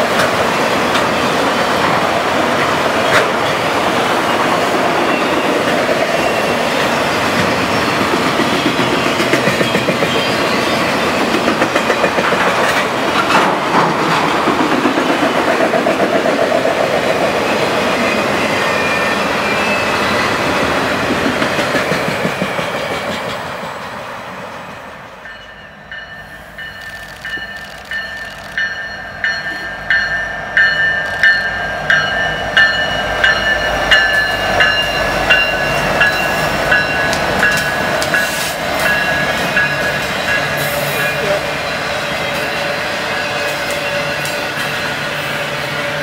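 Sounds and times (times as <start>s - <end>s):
clickety-clack over rail joints: 0.0s - 1.2s, 1.8s - 3.6s, 7.3s - 10.4s, 11.0s - 17.4s, 21.0s - 23.6s, 33.3s - 41.4s
freight train wheels rumbling: 0.0s - 46.0s.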